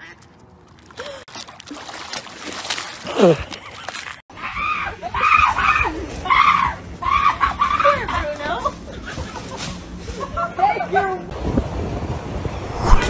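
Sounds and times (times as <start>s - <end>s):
dog splashing into water: 1.3s - 4.2s.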